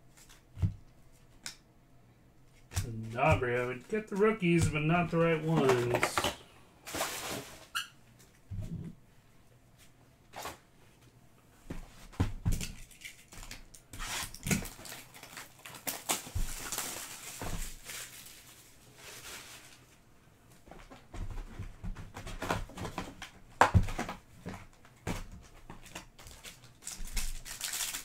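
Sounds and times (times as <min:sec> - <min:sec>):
card pack crinkling: 0:02.8 - 0:07.6, 0:12.7 - 0:19.8, 0:25.8 - 0:28.0.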